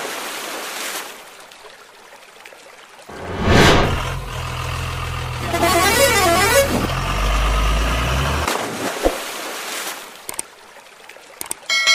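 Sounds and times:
warbling horn tune: 5.4 - 6.9.

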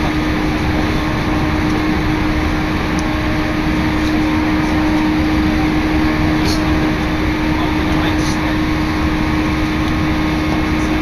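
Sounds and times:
constant low hum: 0.0 - 11.0.

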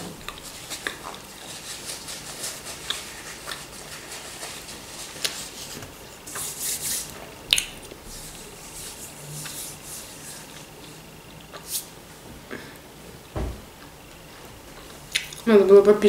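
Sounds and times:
person chewing with wet smacking: 0.0 - 6.4, 7.4 - 8.6, 10.4 - 11.8, 13.8 - 15.5.

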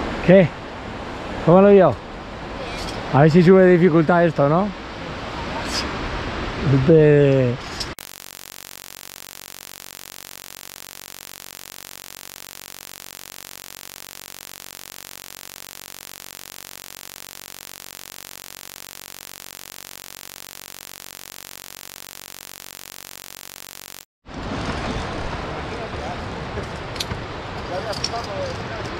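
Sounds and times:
electronic buzz: 8.0 - 24.1.

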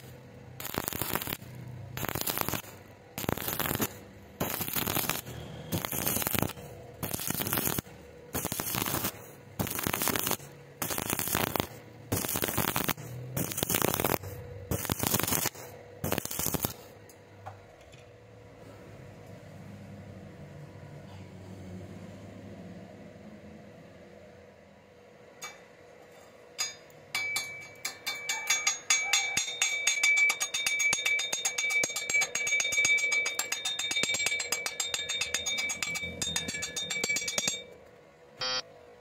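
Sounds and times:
welding arc crackling: 0.0 - 17.0, 29.4 - 37.6.

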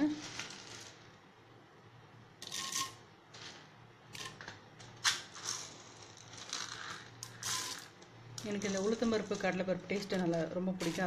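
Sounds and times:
lentils sizzling in hot oil: 5.5 - 11.0.

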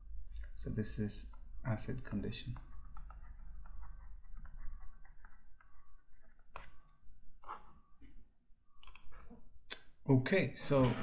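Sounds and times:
low electrical hum: 0.0 - 11.0
stylus writing on tablet: 1.8 - 7.8.

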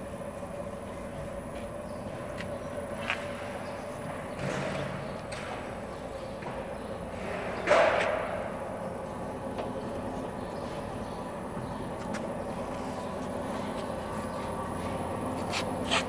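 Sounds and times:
machine humming: 0.0 - 16.0
machine knocks and clunks: 3.4 - 8.6.

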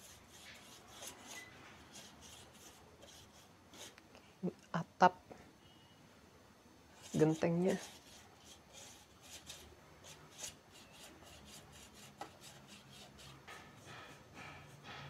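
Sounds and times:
paintbrush brushing on wood: 0.0 - 4.0, 7.0 - 15.0.

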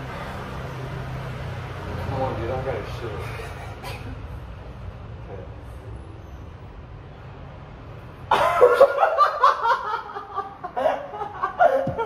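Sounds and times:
man laughing loudly: 8.3 - 12.0.

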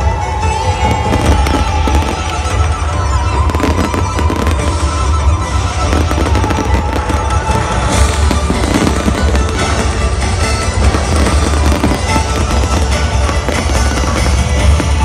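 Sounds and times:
fireworks bangs and crackling: 0.0 - 15.0
loud music with heavy bass: 3.5 - 15.0.

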